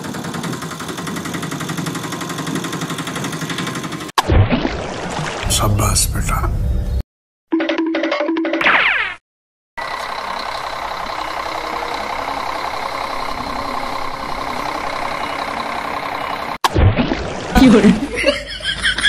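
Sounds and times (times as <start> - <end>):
diesel engine idling: 9.8 - 16.6
sweeping tone effect: 9.8 - 16.6.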